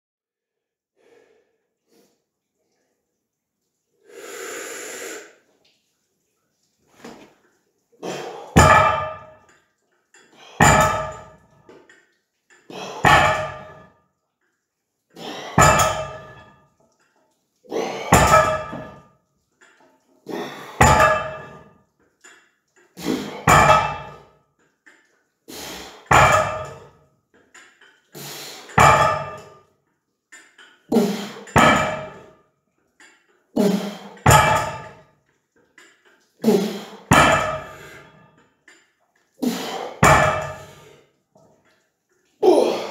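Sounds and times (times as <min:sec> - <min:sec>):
weight plates clanking on floor: 0:08.1 - 0:09.6, 0:10.4 - 0:11.6, 0:12.7 - 0:13.9, 0:15.2 - 0:16.6, 0:17.8 - 0:19.0, 0:19.7 - 0:21.7, 0:23.0 - 0:24.3, 0:25.6 - 0:27.0, 0:28.6 - 0:29.7, 0:30.4 - 0:32.4, 0:33.0 - 0:35.0, 0:36.6 - 0:38.3, 0:39.6 - 0:41.0.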